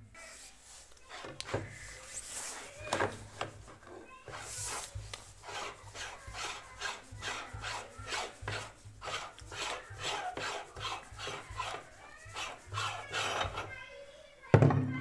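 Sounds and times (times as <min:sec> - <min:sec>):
meat grinder rasping lemons: 0:04.3 - 0:13.8.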